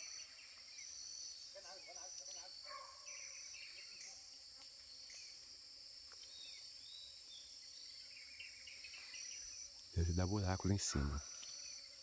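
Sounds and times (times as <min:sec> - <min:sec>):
faint bird chirps: 0:00.0 - 0:05.5
high-pitched insect chorus: 0:00.0 - 0:12.0.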